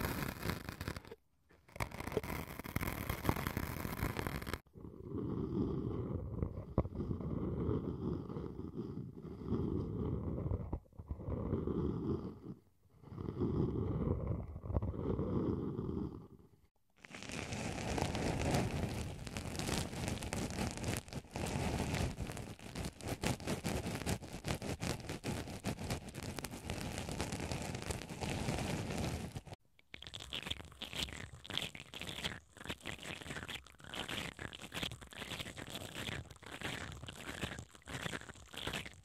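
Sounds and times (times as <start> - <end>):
brush twisting inside wooden ball: 0.0 - 4.7, 17.0 - 39.0
cotton swab scratching foam: 0.0 - 4.7, 17.0 - 39.0.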